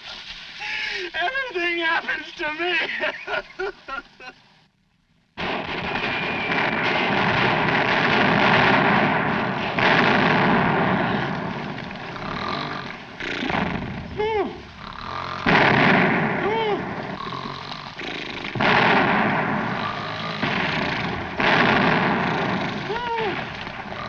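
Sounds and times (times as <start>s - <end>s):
gunfire: 5.4s - 14.0s, 15.4s - 17.6s, 18.4s - 24.0s
explosions: 5.4s - 14.8s, 15.4s - 17.4s, 18.4s - 24.0s.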